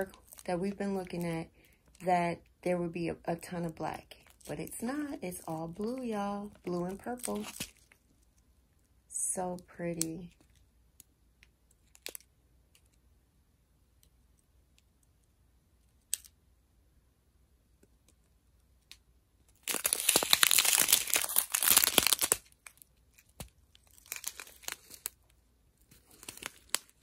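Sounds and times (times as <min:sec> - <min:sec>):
plastic bags crinkling: 0:04.2 - 0:08.0, 0:19.6 - 0:27.0.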